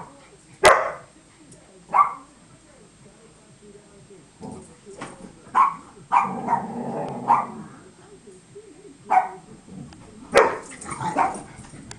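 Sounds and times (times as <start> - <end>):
dog barking: 0.6 - 1.1, 1.9 - 2.2, 5.5 - 7.6, 9.1 - 9.4, 10.3 - 11.5.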